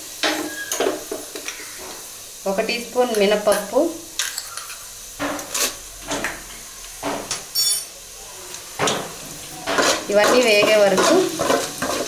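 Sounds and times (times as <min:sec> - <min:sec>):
metallic ring: 0:07.5 - 0:07.9.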